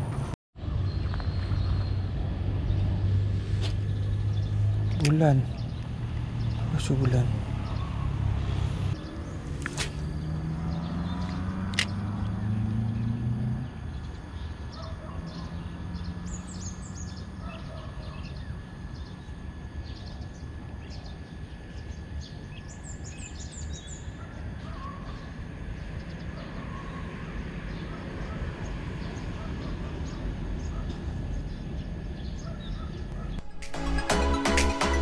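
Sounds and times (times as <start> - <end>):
vehicle engine hum: 0.0 - 17.5
small birds chirping: 3.6 - 27.1
sharp clicks: 11.2 - 12.4.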